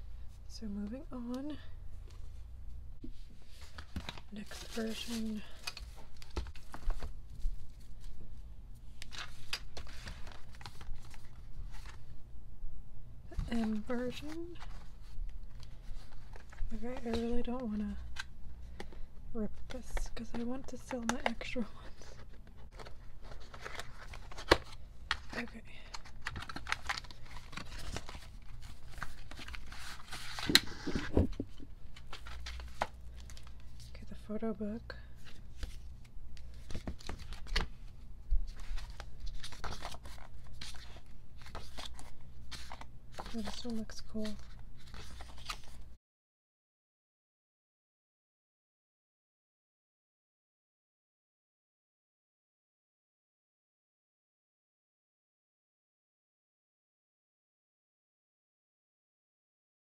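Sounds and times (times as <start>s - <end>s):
packaging rustling: 9.0s - 12.0s, 22.0s - 33.9s, 36.4s - 45.8s.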